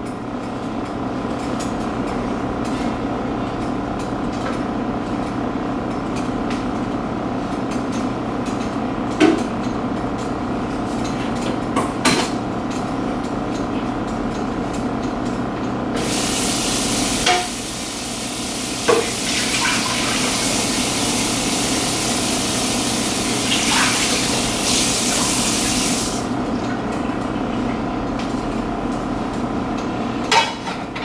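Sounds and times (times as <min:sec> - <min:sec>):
faucet running into sink: 0:18.7 - 0:26.2.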